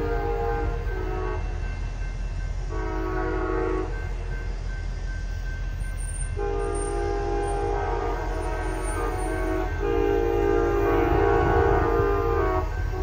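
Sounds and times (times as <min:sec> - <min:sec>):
train horn blasts: 0:00.0 - 0:01.6, 0:02.7 - 0:04.1, 0:06.3 - 0:13.0.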